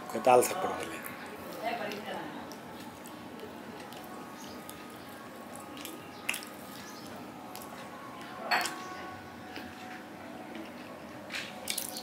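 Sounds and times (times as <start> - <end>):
person chewing with mouth smacks: 5.5 - 6.7.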